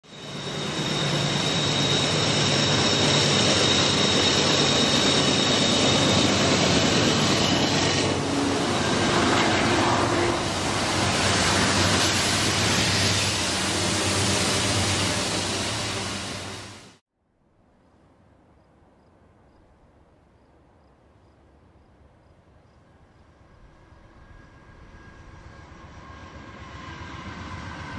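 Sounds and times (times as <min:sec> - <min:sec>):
high squeal: 0:00.0 - 0:17.0
train wheels rumbling on rail: 0:00.1 - 0:17.0.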